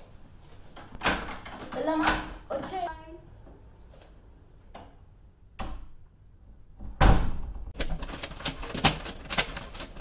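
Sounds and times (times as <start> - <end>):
key rattling in lock: 7.8 - 10.0
keys jangling: 7.8 - 10.0.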